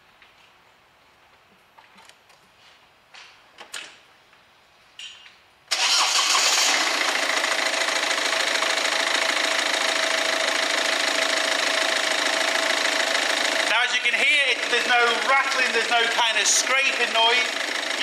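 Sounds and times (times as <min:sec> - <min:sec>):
diesel engine starting and idling: 0:05.7 - 0:18.0.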